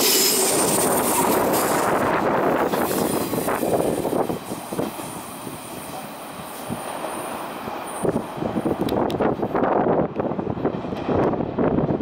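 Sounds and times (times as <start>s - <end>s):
electric train passing: 0.0s - 12.0s.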